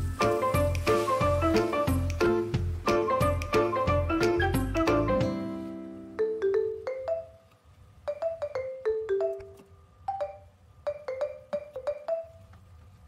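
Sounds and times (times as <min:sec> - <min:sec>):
marimba-like mallet tune: 0:06.2 - 0:07.4, 0:08.1 - 0:12.4.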